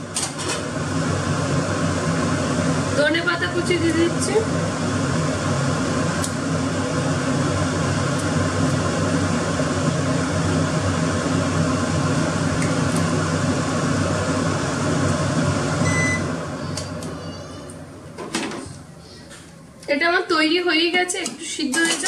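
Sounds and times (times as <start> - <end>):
kitchen fan whirring: 0.0 - 22.0
short electronic beep: 15.8 - 16.3.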